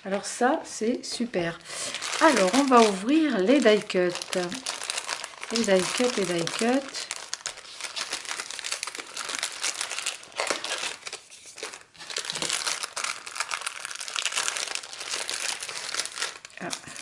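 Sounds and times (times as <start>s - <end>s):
plastic bag crinkling: 1.4s - 17.0s.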